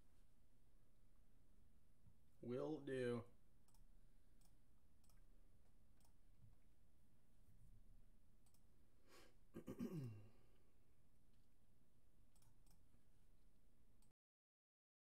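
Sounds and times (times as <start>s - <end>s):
faint clicks: 3.6s - 5.3s, 8.4s - 8.7s, 12.3s - 12.9s.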